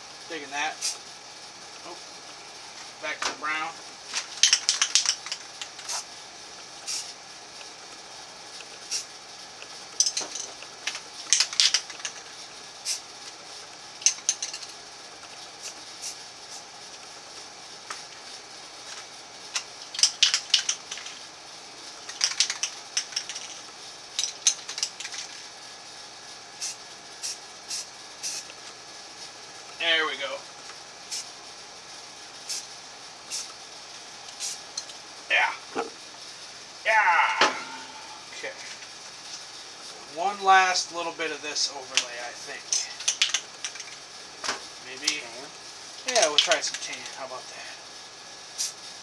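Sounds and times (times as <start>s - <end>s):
spray can hissing bursts: 4.3s - 6.1s, 6.8s - 7.2s, 8.8s - 9.1s, 12.8s - 13.1s, 15.6s - 16.6s, 26.6s - 28.6s, 31.1s - 31.4s, 32.4s - 33.6s, 34.3s - 34.7s, 48.5s - 49.0s.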